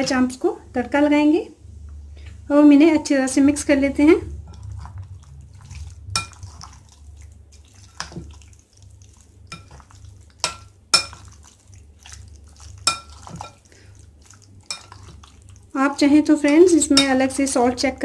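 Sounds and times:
low steady hum: 0.0s - 18.0s
spoon stirring thick marinade: 4.4s - 18.0s
spoon clinking against glass: 12.8s - 13.6s.

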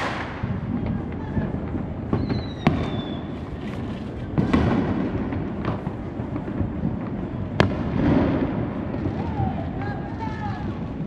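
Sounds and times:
distant fireworks rumble: 0.0s - 11.0s
fireworks sharp cracks: 0.0s - 11.0s
high falling firework whistle: 2.1s - 3.6s.

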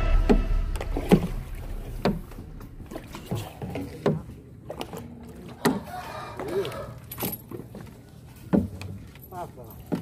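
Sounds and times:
knocks and thumps on boat: 8.5s - 9.0s.

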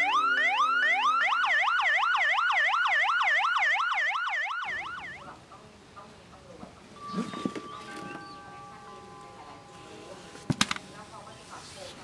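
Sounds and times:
emergency vehicle siren: 0.0s - 5.3s.

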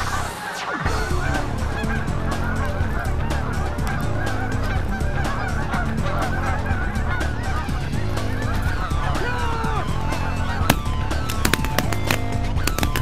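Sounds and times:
geese honking: 0.0s - 13.0s.

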